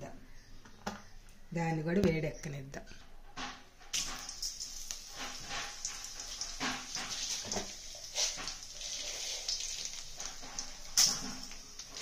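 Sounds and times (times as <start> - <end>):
hot oil sizzling and popping: 3.4 - 12.0.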